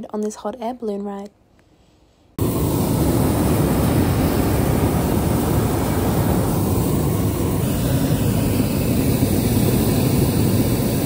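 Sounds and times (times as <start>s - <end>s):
propane burner roaring: 2.4s - 11.0s.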